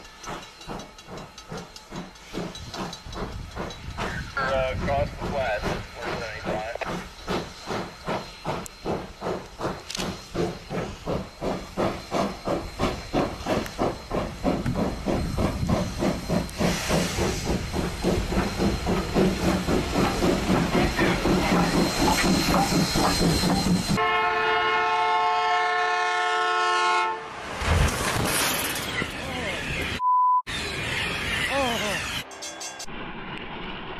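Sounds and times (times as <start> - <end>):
steam locomotive exhaust chuffing: 0.0 - 27.1.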